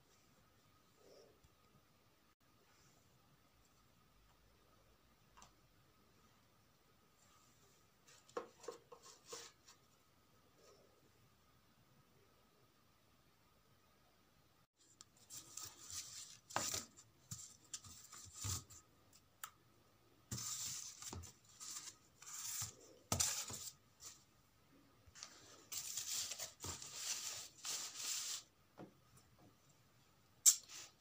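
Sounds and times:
cardboard and paper rustling: 15.2s - 18.8s, 20.3s - 24.2s, 25.2s - 28.5s.

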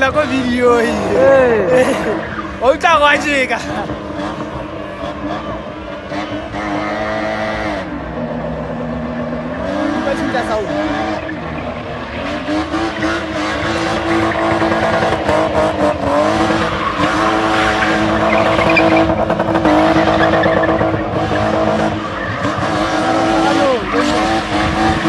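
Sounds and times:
car engine at high revs: 0.0s - 25.0s
tyres squealing on paving: 9.1s - 25.0s.

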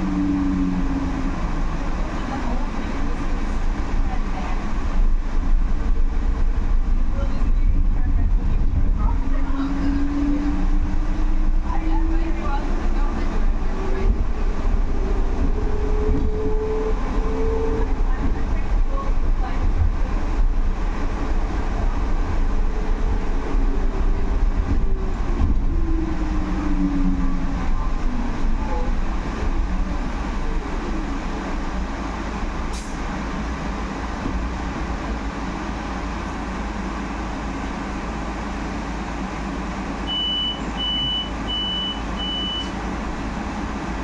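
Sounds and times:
bus road rumble: 0.0s - 44.0s
short high beeps: 40.1s - 42.8s.

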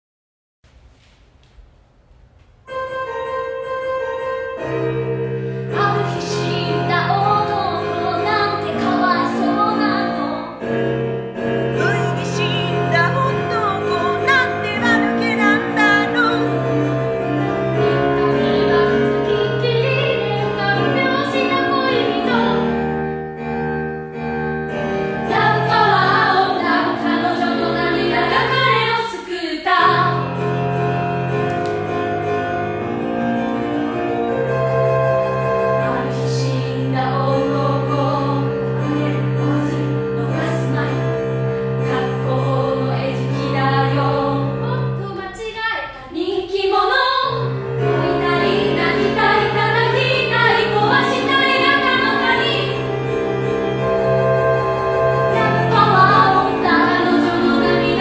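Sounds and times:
piano accompaniment: 2.2s - 45.4s, 46.1s - 58.0s
person singing: 11.8s - 16.5s.

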